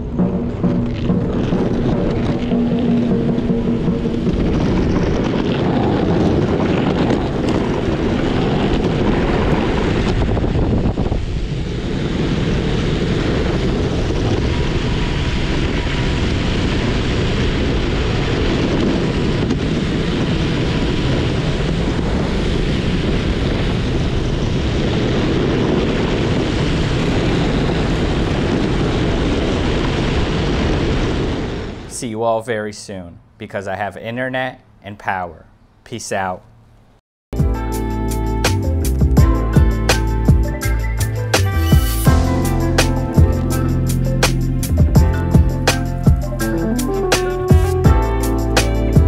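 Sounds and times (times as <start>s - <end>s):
skateboard wheels rumbling on asphalt: 0.0s - 31.9s
wind buffeting microphone: 0.0s - 31.9s, 42.1s - 49.0s.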